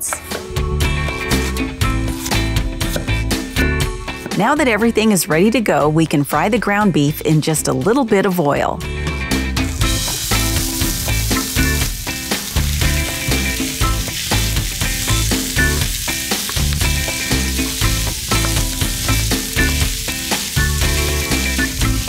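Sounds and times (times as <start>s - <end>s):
background music with steady beat: 0.0s - 5.4s, 8.8s - 22.0s
meat sizzling in oil: 9.6s - 22.0s.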